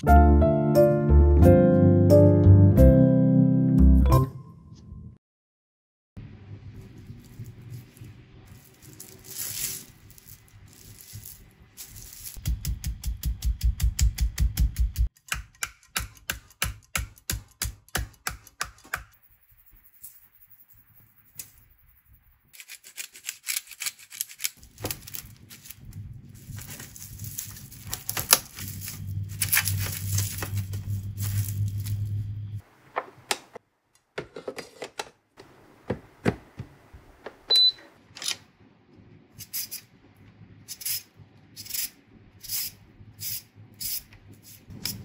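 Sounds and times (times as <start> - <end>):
cling wrap pulled off roll: 22.9 - 32.2.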